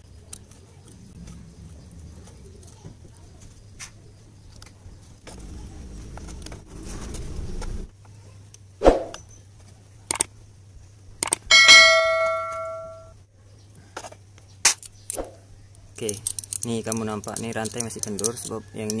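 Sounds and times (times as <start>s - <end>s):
metal tool clanging: 11.5s - 13.1s
low hum: 11.5s - 13.2s
metal clicks: 16.0s - 19.0s.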